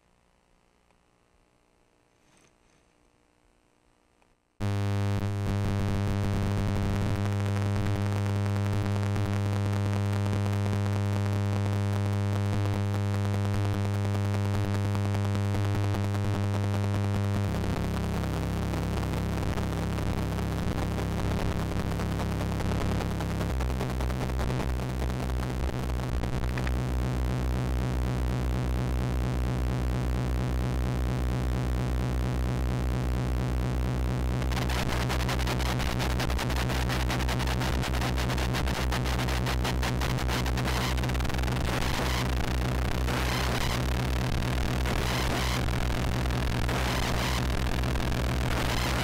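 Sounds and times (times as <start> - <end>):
electronic noise music drone: 17.4 - 49.0.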